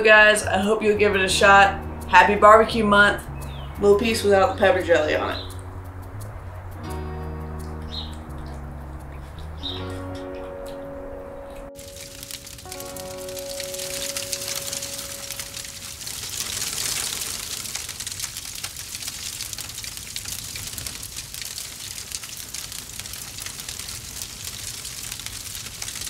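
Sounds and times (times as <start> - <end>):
fire crackling and hissing: 11.8 - 26.0.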